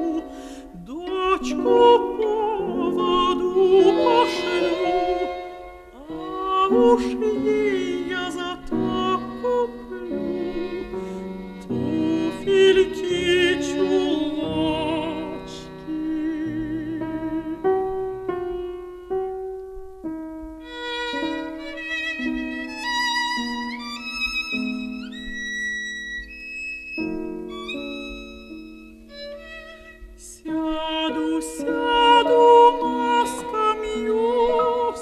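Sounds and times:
bowed strings: 0.0s - 19.2s
high violin line: 0.0s - 19.2s, 20.6s - 35.0s
piano: 0.0s - 35.0s.

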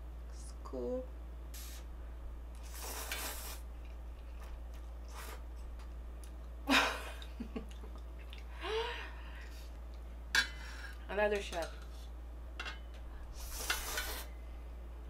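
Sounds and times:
steady low hum: 0.0s - 15.0s
person slurping noodles: 2.6s - 3.6s.

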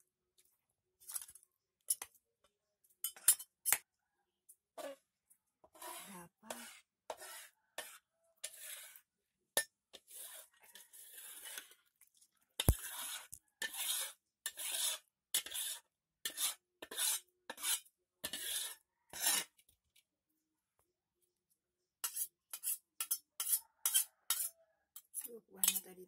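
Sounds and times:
wooden spatula scraping bowl: 4.8s - 19.7s, 22.0s - 25.9s
spatula knocking: 25.6s - 25.9s.

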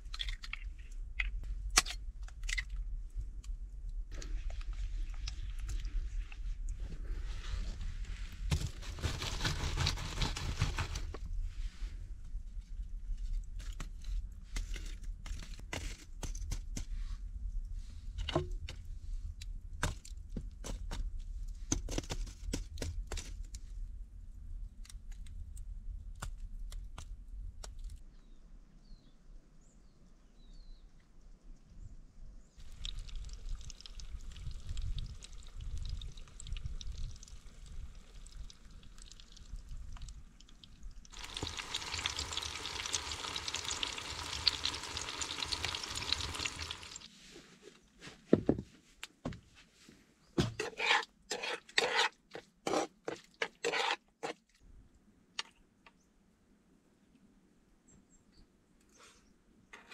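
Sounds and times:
embers crackling: 8.5s - 11.2s, 32.6s - 47.1s
faint bird chirps: 28.1s - 32.6s
food sizzling in a pan: 41.1s - 47.1s
pan scraping on hearth: 50.6s - 52.1s.

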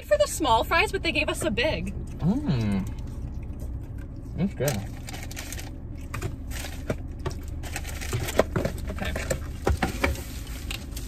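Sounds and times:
low steady hum: 0.0s - 11.0s
paper bags and containers rustling: 4.4s - 11.0s.

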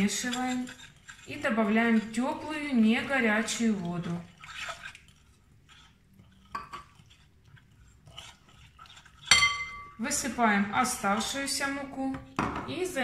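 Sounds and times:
spoon stirring in glass bowl: 0.0s - 12.3s
spoon clinking against glass: 9.3s - 10.0s.

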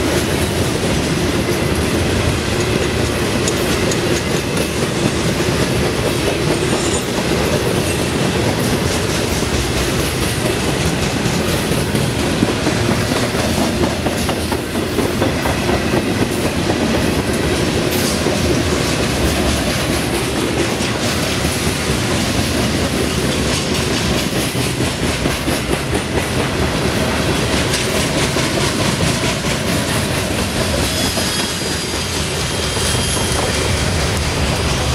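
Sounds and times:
train wheels clacking over rail joints: 0.0s - 34.9s
high wheel squeal: 30.6s - 34.0s.

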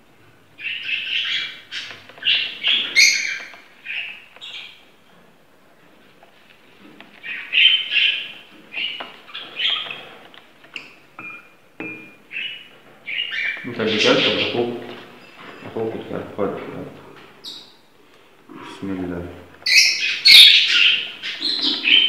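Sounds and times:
parrot chicks begging calls: 0.6s - 4.8s, 7.2s - 10.1s, 12.2s - 14.8s, 19.6s - 22.0s.

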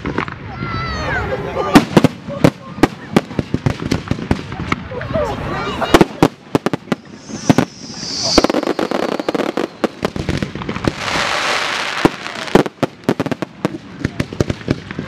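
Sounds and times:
fireworks bangs: 5.8s - 15.0s
crackling hiss: 6.1s - 13.1s
firework whistle: 6.6s - 11.8s.

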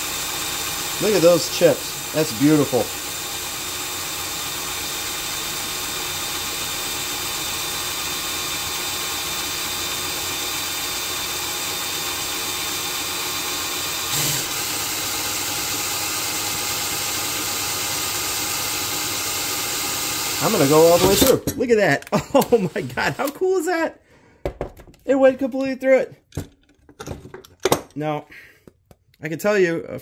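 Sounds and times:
power drill cutting into steel: 0.0s - 21.5s, 22.1s - 23.6s.

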